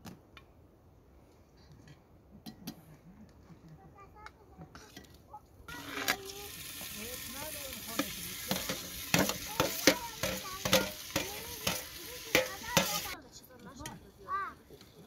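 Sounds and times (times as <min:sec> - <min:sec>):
metal ladle scraping pot: 0:05.7 - 0:06.3, 0:08.0 - 0:13.2
vegetables sizzling in hot pot: 0:05.7 - 0:13.2.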